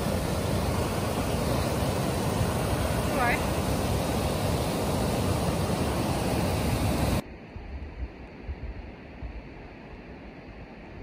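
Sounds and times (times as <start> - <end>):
waterfall rushing water: 0.0 - 7.2.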